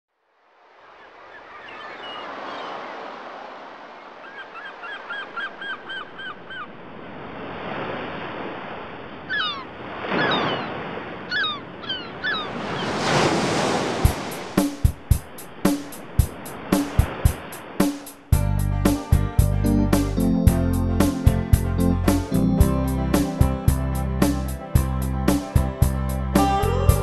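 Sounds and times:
ocean surf washing ashore: 0:00.4 - 0:19.0
birds calling: 0:00.8 - 0:03.0, 0:03.9 - 0:06.8, 0:09.2 - 0:13.1
drum beat: 0:14.0 - 0:26.0.

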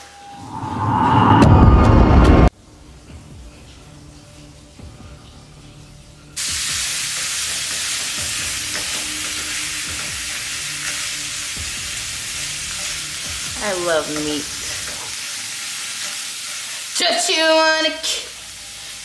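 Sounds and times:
quiet background music: 0:02.5 - 0:18.9
meat sizzling in a frying pan: 0:06.4 - 0:19.0.

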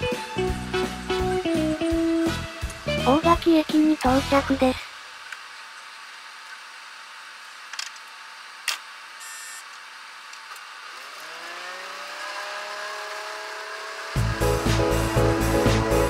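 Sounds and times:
diesel train engine revving: 0:11.0 - 0:16.0.

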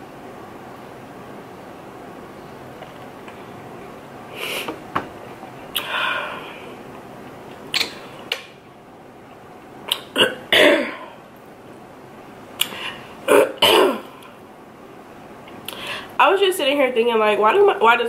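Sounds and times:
woman coughing: 0:10.2 - 0:11.1, 0:13.3 - 0:14.1.

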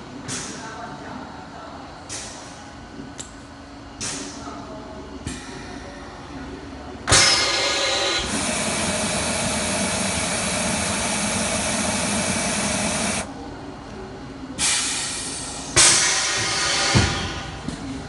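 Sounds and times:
compressed air hissing: 0:07.1 - 0:13.3
short bursts of air: 0:07.1 - 0:13.3, 0:14.6 - 0:16.9.

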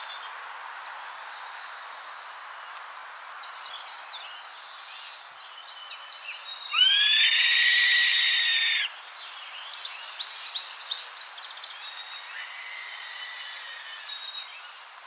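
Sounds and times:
bird calls: 0:06.6 - 0:08.9, 0:09.8 - 0:15.0.

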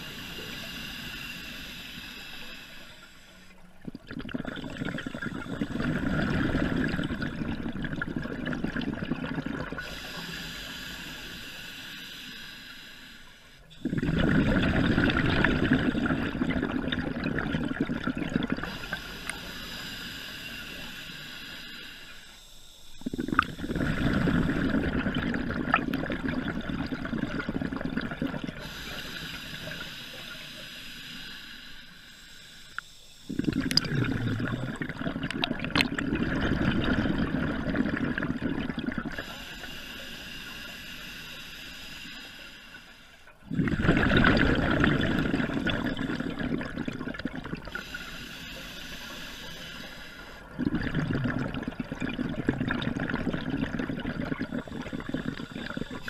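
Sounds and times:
regulator breathing hiss: 0:00.0 - 0:03.8, 0:09.8 - 0:14.0, 0:18.6 - 0:24.6, 0:28.5 - 0:34.7, 0:39.1 - 0:43.5, 0:47.6 - 0:50.6, 0:54.2 - 0:56.0
exhaled bubbles underwater: 0:00.0 - 0:11.7, 0:13.7 - 0:21.3, 0:22.9 - 0:30.8, 0:33.2 - 0:41.3, 0:43.3 - 0:56.0.

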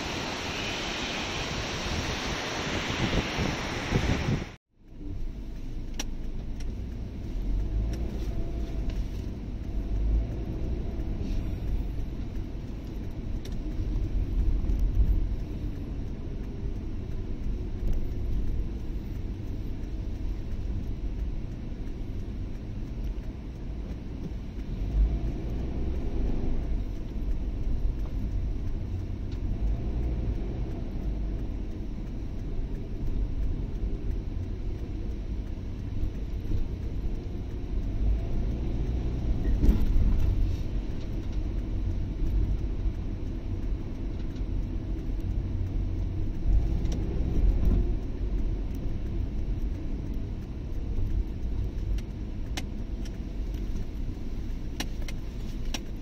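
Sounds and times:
car engine and tyre rumble: 0:00.0 - 0:56.0.

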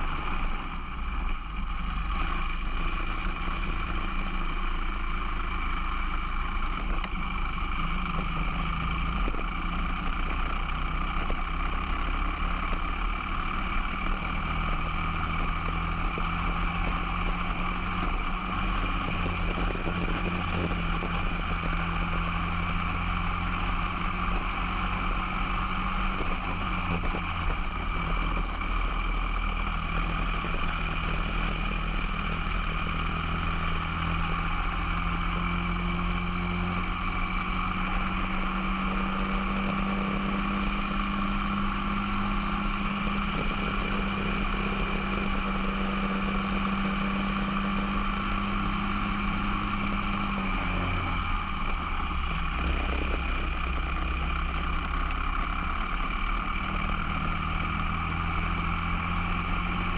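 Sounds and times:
kart engine at racing speed: 0:00.0 - 0:59.9
wind and road noise: 0:00.0 - 0:59.9.

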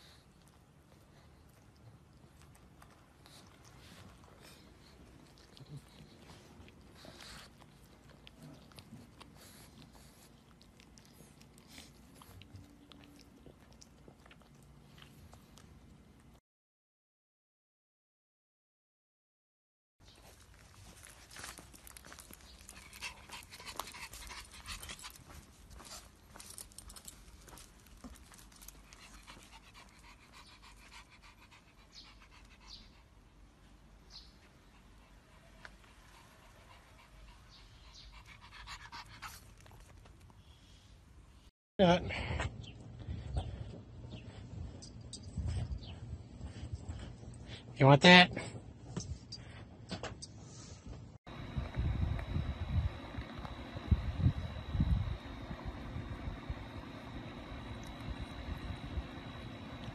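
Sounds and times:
dog panting: 0:00.0 - 0:15.7, 0:21.0 - 0:40.7, 0:42.6 - 0:47.8.

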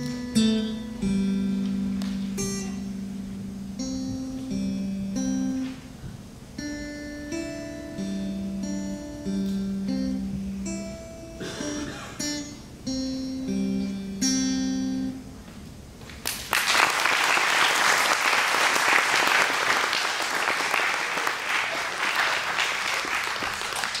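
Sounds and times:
electric guitar notes: 0:00.0 - 0:16.1
audience applauding: 0:16.2 - 0:24.0.

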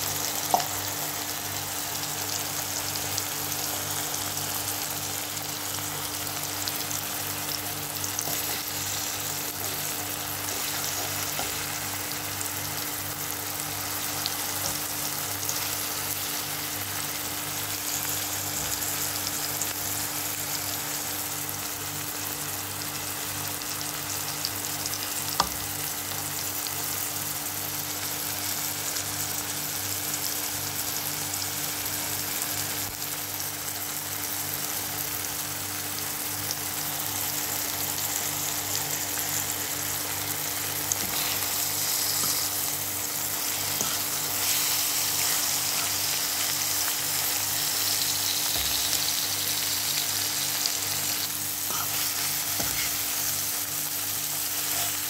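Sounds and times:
eggs sizzling in a pan: 0:00.0 - 0:55.0
fork stirring in a pan: 0:08.2 - 0:11.8, 0:40.9 - 0:53.6, 0:54.4 - 0:55.0.

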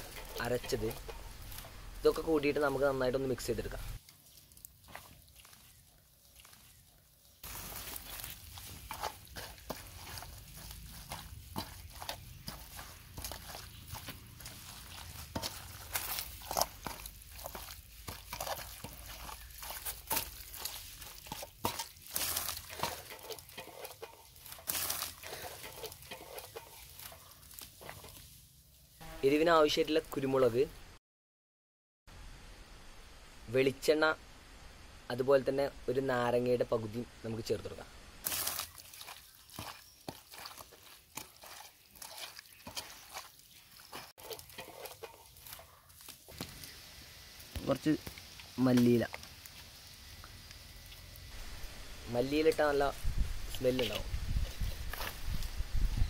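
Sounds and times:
hands squishing wet paste: 0:00.0 - 0:28.4, 0:38.2 - 0:46.8.

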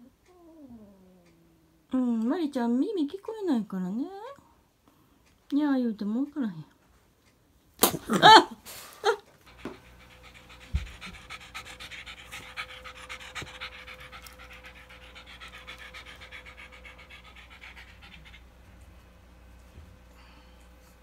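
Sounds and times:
dog panting fast: 0:09.4 - 0:19.2.

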